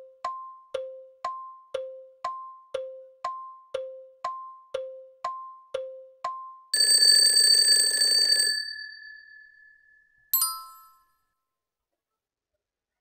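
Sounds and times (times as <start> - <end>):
timer ticks alternating in tone: 0.0 - 7.6
time-up bell ringing: 6.8 - 11.1
bright chime: 8.8 - 11.1.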